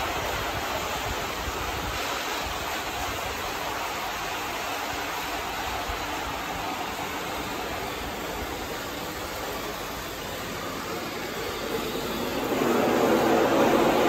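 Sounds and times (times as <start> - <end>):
small model train motor rumbling: 7.0 - 14.0.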